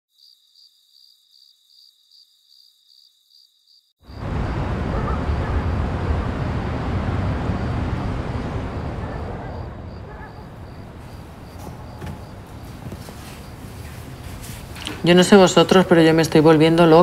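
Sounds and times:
crickets chirping: 0.1 - 16.2
city traffic rumble: 4.1 - 17.0.

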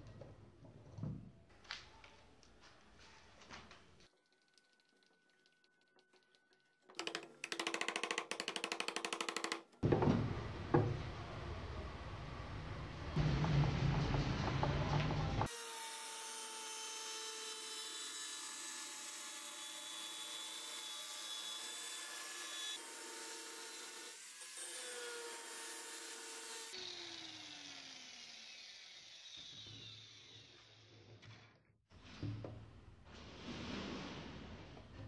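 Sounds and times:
angle grinder cutting wood: 15.4 - 30.9
grinder winding down: 24.6 - 30.9.

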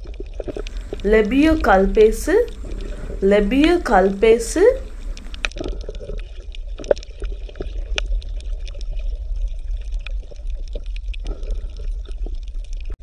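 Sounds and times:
water bubbling with pops: 0.5 - 1.1, 2.5 - 3.2
steady low hum: 0.6 - 5.5.

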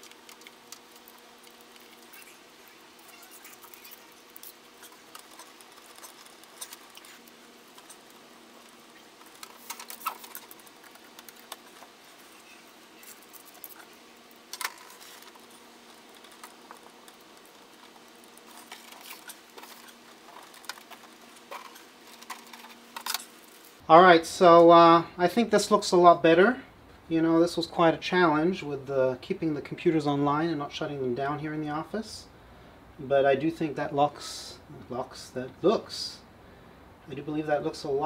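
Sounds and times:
cables rustling: 0.0 - 23.8
sharp handling noises: 0.0 - 23.8
faint steady hum: 0.0 - 38.0.

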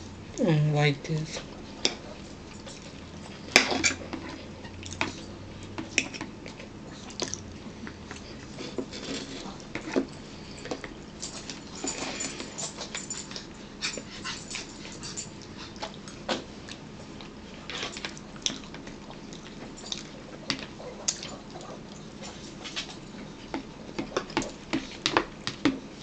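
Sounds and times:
chewing and mouth smacks: 4.8 - 8.6, 12.7 - 23.0.

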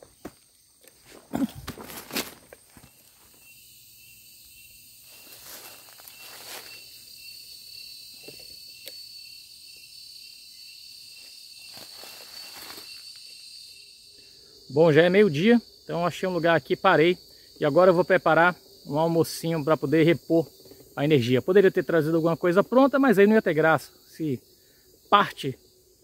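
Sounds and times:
high-pitched insect chorus: 0.0 - 26.0
footsteps in dry leaves: 1.1 - 3.4, 5.0 - 7.0, 11.6 - 13.2.

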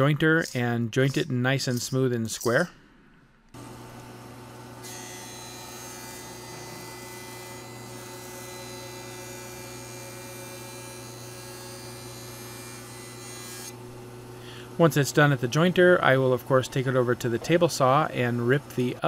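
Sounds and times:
electric motor hum: 3.6 - 14.7.

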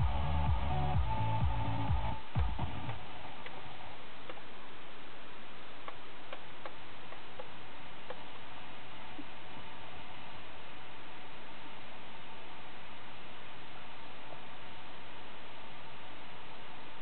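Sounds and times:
car radio music: 0.0 - 4.4
radio static hiss: 1.6 - 17.0.

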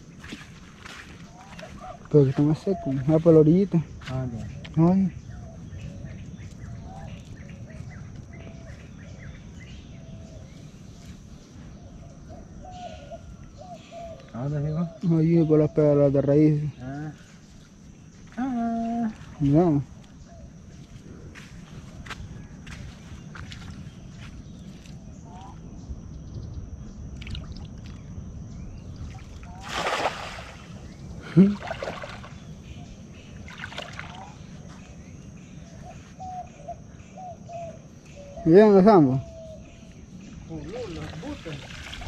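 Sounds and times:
birds chirping: 0.0 - 42.0
steady low rumble: 19.2 - 29.7, 30.4 - 33.6
net splashing into water: 29.3 - 30.8, 31.4 - 32.4.

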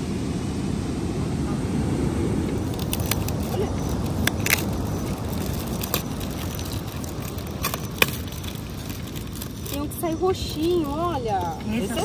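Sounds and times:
low background rumble: 0.0 - 12.0
plastic packaging crinkling: 2.6 - 11.6.

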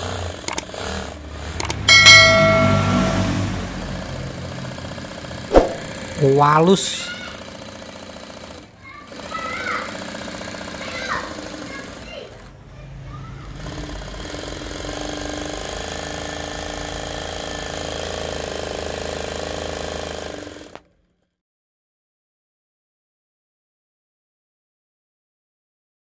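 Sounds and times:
sewing machine clattering: 0.0 - 1.8, 7.3 - 12.5, 13.5 - 21.0.

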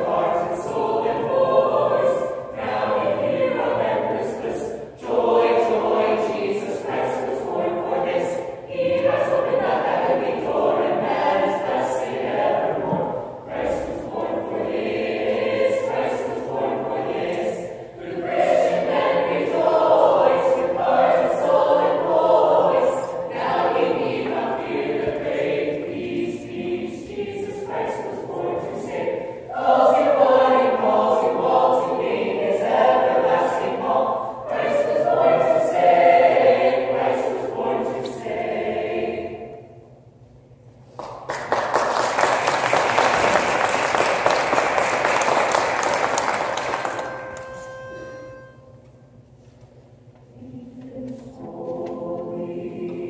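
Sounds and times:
choir singing a cappella: 0.0 - 40.0, 50.2 - 53.0
audience applause: 41.0 - 47.4.

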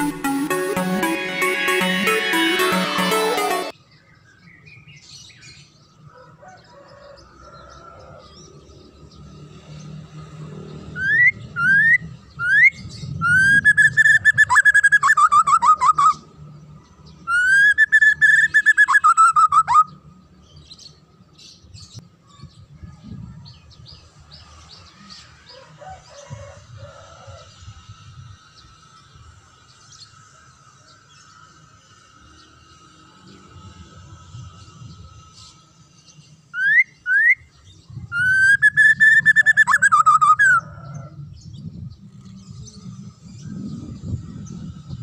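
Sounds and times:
bird whistling song: 11.0 - 16.2, 17.3 - 20.0, 36.6 - 40.8.

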